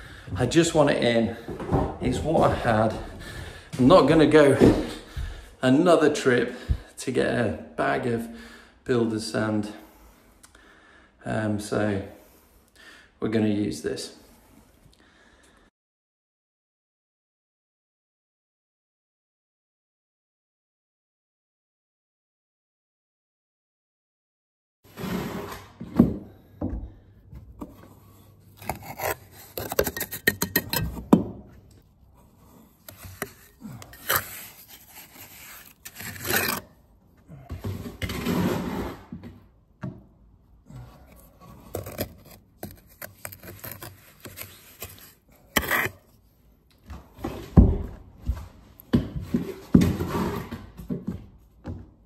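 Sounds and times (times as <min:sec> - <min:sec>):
trowel scraping metal bucket: 0:27.6 - 0:31.1, 0:32.2 - 0:36.8, 0:37.7 - 0:39.1, 0:41.1 - 0:46.2.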